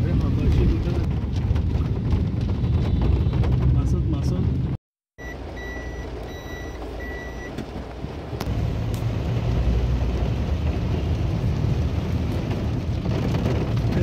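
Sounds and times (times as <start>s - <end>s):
short electronic beeps: 5.2s - 7.5s
rain on glass: 7.6s - 14.0s.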